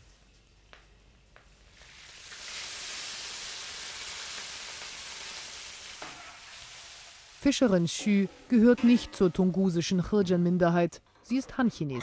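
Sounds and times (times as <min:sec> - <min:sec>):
fish sizzling in a wok: 0:01.7 - 0:08.6.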